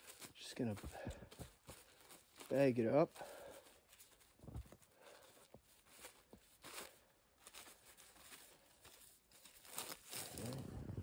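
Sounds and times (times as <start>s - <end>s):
plastic bag crinkling: 5.0s - 11.0s.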